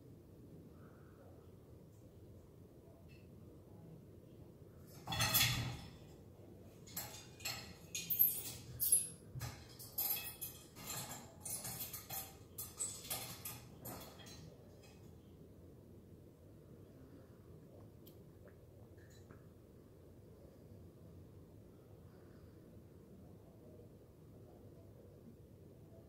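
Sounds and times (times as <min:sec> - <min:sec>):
cat claws scraping on metal ladder: 0:04.9 - 0:06.1, 0:06.8 - 0:15.0.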